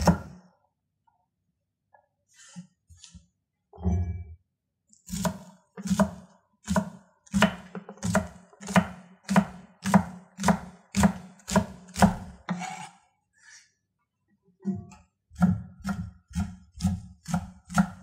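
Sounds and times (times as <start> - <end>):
knife chopping on wooden board: 5.1 - 12.9, 15.4 - 18.0.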